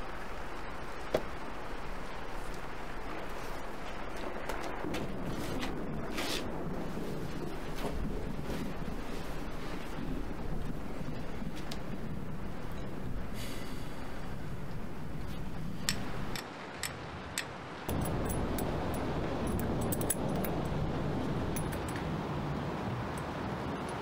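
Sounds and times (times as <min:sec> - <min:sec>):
steady low hiss: 0:00.0 - 0:24.0
small metallic clicks and clinks: 0:19.5 - 0:20.6, 0:21.6 - 0:22.0.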